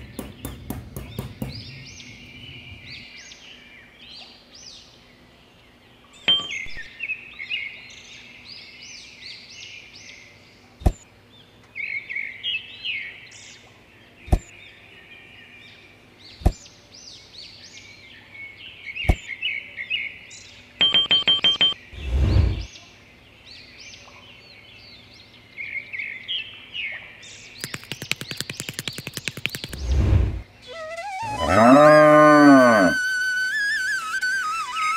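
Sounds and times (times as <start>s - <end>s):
birds chirping: 0.0s - 34.9s
sharp clicks: 27.6s - 30.0s.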